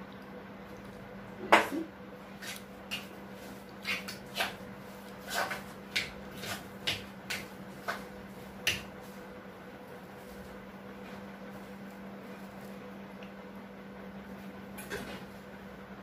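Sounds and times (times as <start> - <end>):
spoon scraping stone mortar: 5.2 - 5.7.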